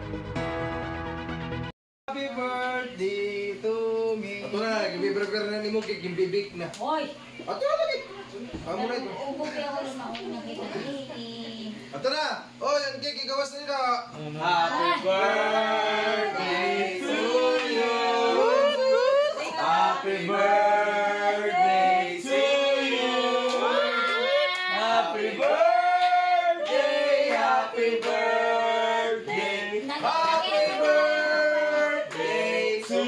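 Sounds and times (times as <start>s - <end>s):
group of people singing: 14.4s - 33.0s.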